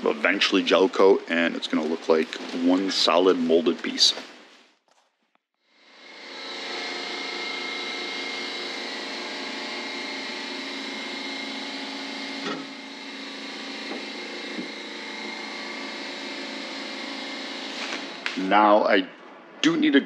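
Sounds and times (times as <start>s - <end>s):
belt sander grinding fibreglass: 5.8s - 18.4s
loud sander scrape: 5.8s - 18.4s.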